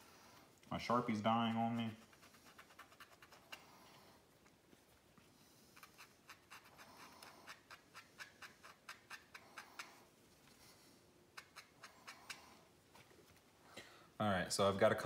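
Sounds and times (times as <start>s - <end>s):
marker scratching on foam: 1.1s - 4.0s, 5.7s - 10.1s, 11.3s - 12.6s.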